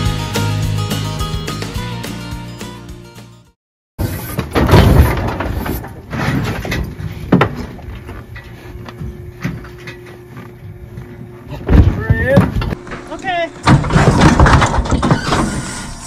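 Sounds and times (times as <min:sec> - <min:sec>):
steel chute clanking and banging: 0:11.7 - 0:16.0.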